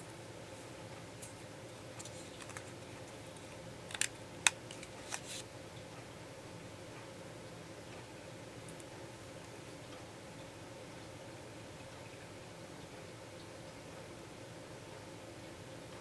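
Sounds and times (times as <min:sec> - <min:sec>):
faint steady hum: 0:00.0 - 0:16.0
paper handling noises: 0:01.2 - 0:05.5.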